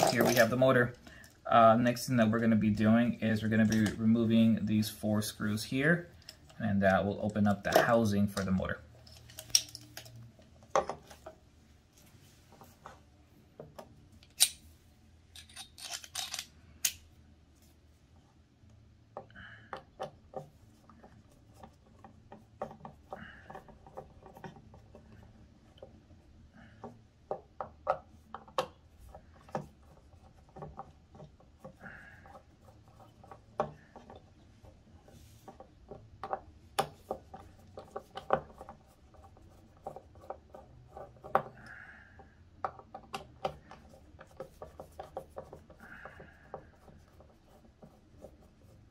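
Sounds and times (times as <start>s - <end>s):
plastic parts tapping: 0.0s - 1.4s
screwdriver clicking and scraping: 7.3s - 10.2s, 14.2s - 14.6s, 15.3s - 17.0s.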